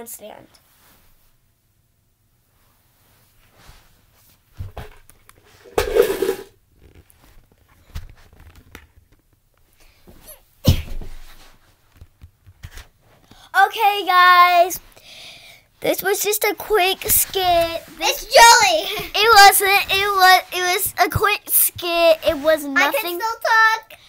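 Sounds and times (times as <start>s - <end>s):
faint rustling and clicks: 6.7s - 10.4s, 11.1s - 13.5s
loud breathy bursts: 15.0s - 15.7s.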